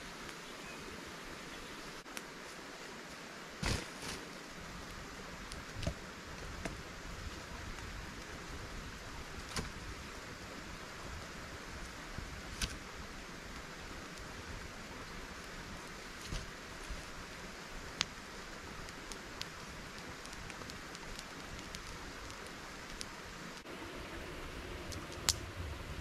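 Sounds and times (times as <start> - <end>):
rain hissing: 0.0 - 26.0
campfire wood popping: 3.6 - 10.4, 11.0 - 23.7, 24.8 - 26.0.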